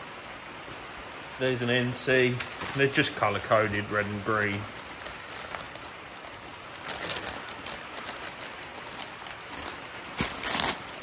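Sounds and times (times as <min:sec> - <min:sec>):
bubble wrap and plastic bags crinkling: 0:02.2 - 0:11.0.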